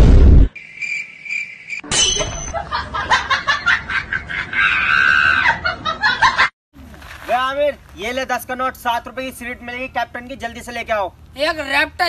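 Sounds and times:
high ringing tone: 0:00.6 - 0:02.6.

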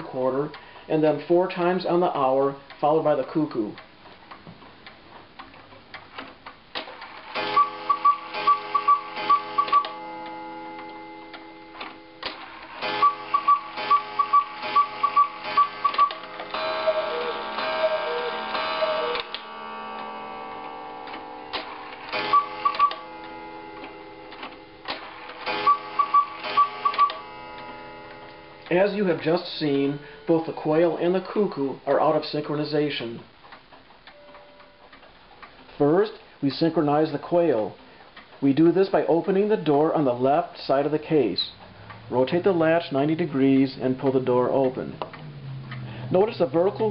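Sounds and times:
clock ticking: 0:01.8 - 0:31.3
cuckoo clock calls: 0:07.3 - 0:12.0, 0:12.7 - 0:20.6, 0:22.1 - 0:28.9
clock chime strikes: 0:07.4 - 0:12.2, 0:12.8 - 0:28.9
clock quail whistled notes: 0:07.6 - 0:09.9, 0:13.0 - 0:16.2, 0:16.8 - 0:19.3, 0:22.2 - 0:23.0, 0:25.5 - 0:27.2.

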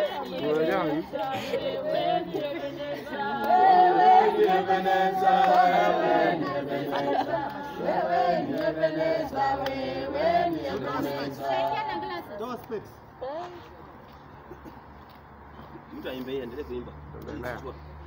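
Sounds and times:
group singing worship song: 0:00.0 - 0:12.4.

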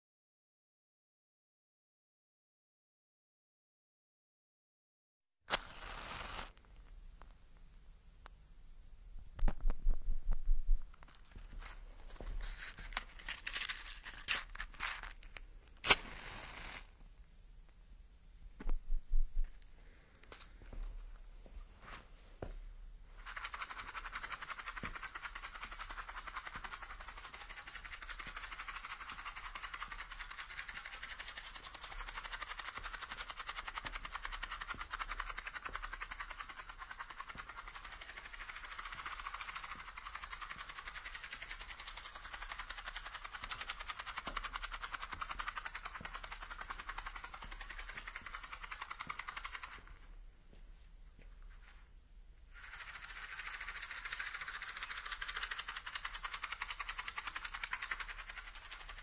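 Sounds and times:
matches rattling in a matchbox: 0:05.5 - 0:06.9, 0:10.9 - 0:16.9, 0:23.2 - 0:50.0, 0:52.5 - 0:59.0.

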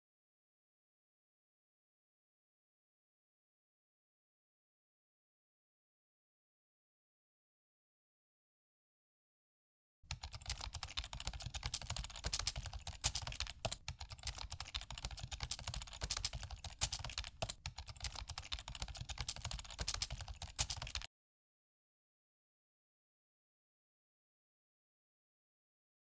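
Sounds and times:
rapid keyboard typing: 0:10.1 - 0:21.1.

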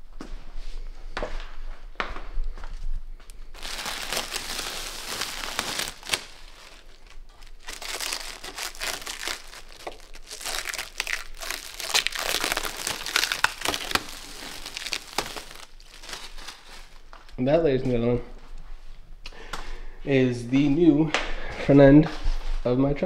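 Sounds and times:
plastic film peeling and crinkling: 0:03.5 - 0:17.4.

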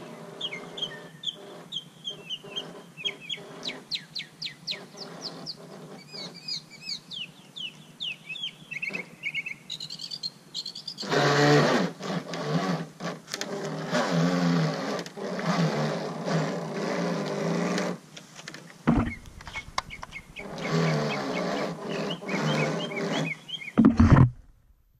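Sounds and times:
birds chirping: 0:00.0 - 0:11.2, 0:18.9 - 0:24.4
model boat motor running: 0:11.0 - 0:18.0, 0:18.9 - 0:24.4
sharp knock: 0:18.9 - 0:20.2.

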